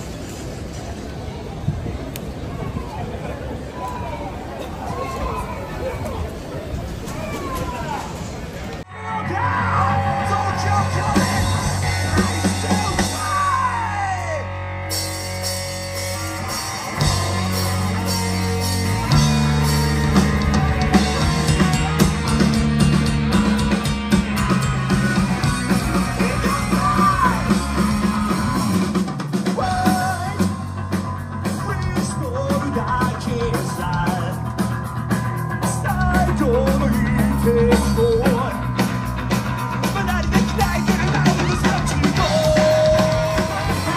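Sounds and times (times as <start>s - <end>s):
drums: 6.3s - 43.9s
bass guitar: 8.9s - 43.9s
electric guitar: 8.9s - 43.9s
person singing: 24.4s - 28.9s, 29.5s - 34.4s, 35.6s - 38.7s, 39.6s - 43.9s.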